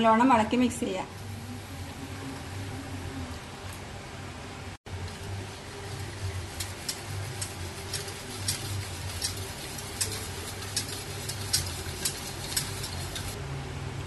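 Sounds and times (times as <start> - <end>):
steady low hum: 0.0 - 14.0
whisk clicking against metal bowl: 5.0 - 13.4.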